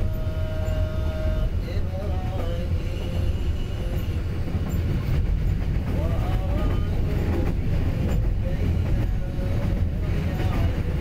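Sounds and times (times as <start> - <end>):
train wheels rumbling on track: 0.0 - 11.0.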